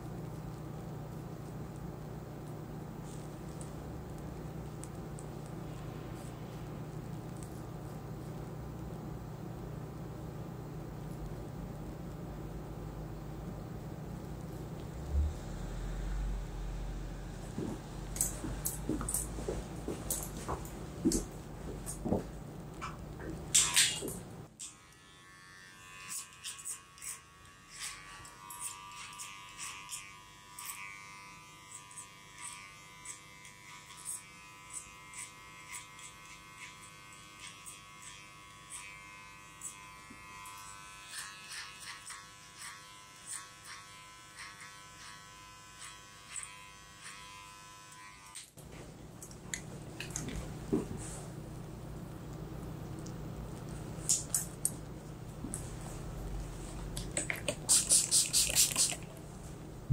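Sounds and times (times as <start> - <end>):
clipper clicks in hair: 23.5 - 24.8, 54.0 - 54.8
electric hair clipper buzzing: 23.5 - 48.6.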